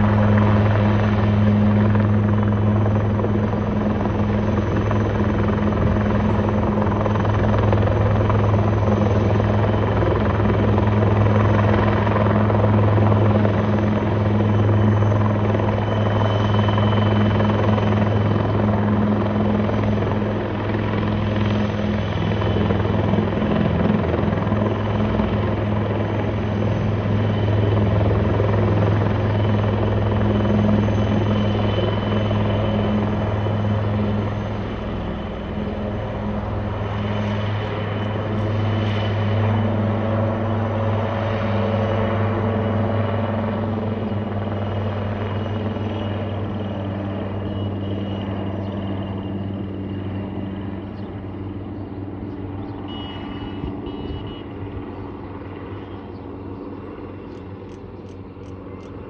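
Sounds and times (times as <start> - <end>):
helicopter rotor and engine drone: 0.0 - 59.0.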